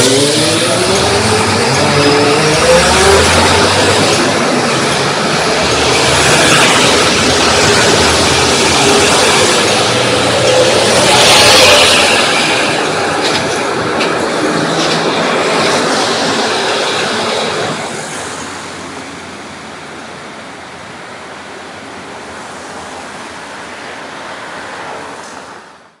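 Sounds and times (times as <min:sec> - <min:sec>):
bus diesel engine pulling away: 0:00.0 - 0:12.9
street traffic: 0:00.0 - 0:26.0.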